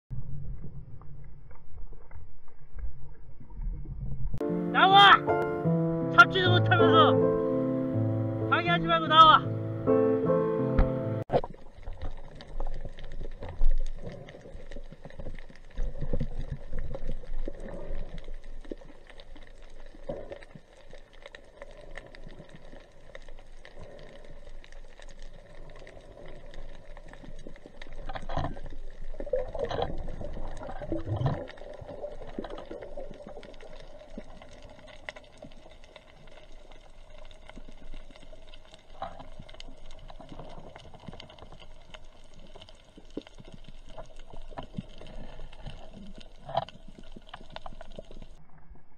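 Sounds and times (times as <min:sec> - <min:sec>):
small clicks and crackles: 0:11.3 - 0:48.9.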